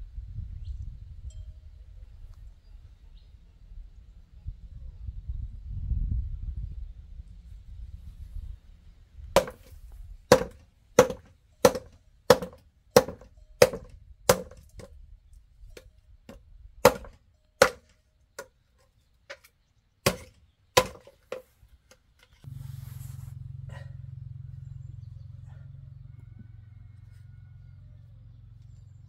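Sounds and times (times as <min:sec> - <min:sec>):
blade chopping: 0:09.4 - 0:09.7, 0:10.3 - 0:14.9, 0:16.8 - 0:17.9, 0:20.1 - 0:21.4
steady low hum: 0:22.4 - 0:26.8.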